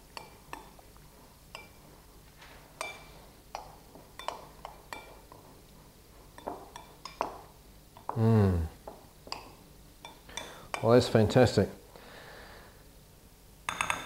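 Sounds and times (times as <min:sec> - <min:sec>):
spoon stirring salad: 0:00.0 - 0:08.2
spoon clinking against glass: 0:04.2 - 0:05.2, 0:13.7 - 0:14.0.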